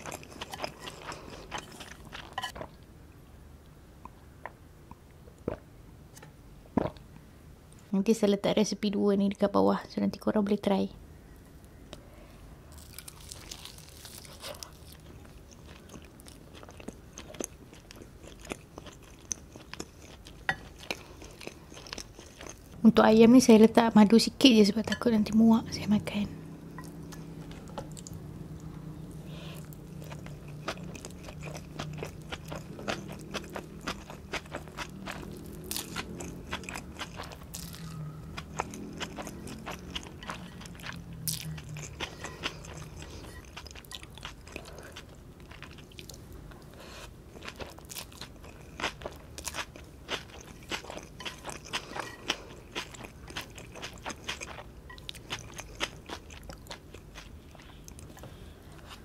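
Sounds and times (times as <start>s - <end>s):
crunchy chewing: 0.0s - 2.7s, 12.7s - 22.8s, 26.7s - 59.0s.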